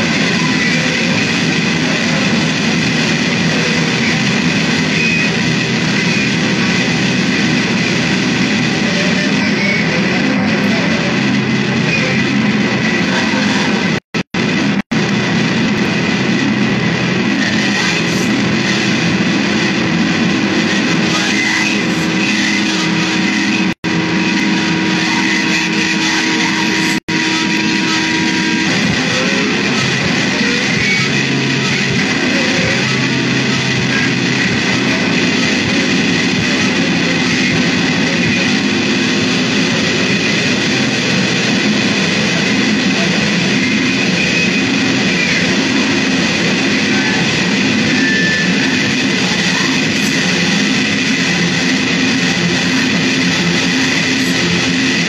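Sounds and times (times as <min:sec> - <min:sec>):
distorted noise music: 0:00.0 - 0:55.0.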